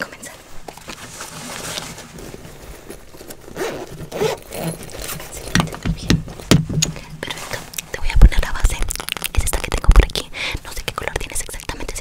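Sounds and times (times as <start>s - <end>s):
scraping and rustling of items: 0.1s - 8.3s
sharp knocks: 5.6s - 7.0s.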